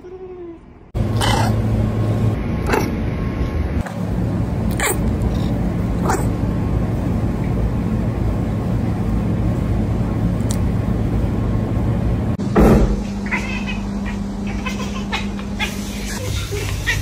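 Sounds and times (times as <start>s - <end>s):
steady low hum: 0.0s - 17.0s
cat chattering: 1.2s - 1.6s, 4.7s - 6.3s, 13.2s - 17.0s.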